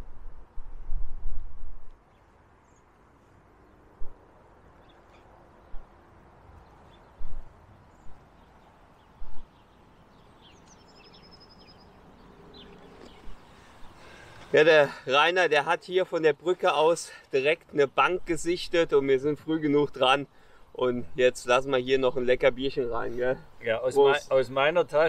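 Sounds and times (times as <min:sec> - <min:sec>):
wind buffeting microphone: 0:00.0 - 0:02.1, 0:05.6 - 0:11.2
faint bird chirps: 0:04.8 - 0:06.0, 0:06.6 - 0:14.6.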